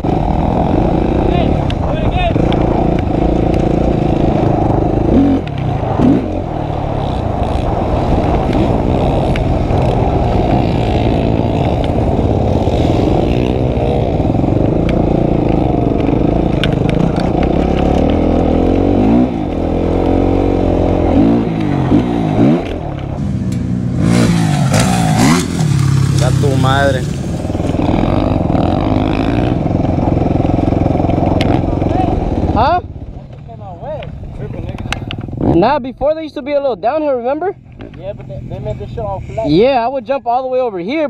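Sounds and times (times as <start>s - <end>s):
motorcycle engine revving: 0.0s - 41.0s.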